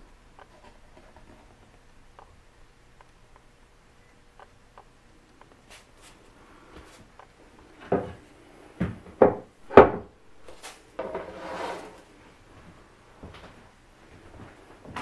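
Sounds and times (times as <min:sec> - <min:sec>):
wood scraping on workbench: 0:10.6 - 0:12.0.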